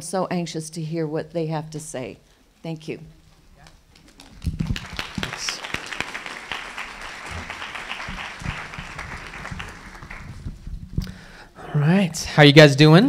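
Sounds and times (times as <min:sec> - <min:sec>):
audience applauding: 0:04.0 - 0:10.7
low thumps: 0:07.3 - 0:11.4.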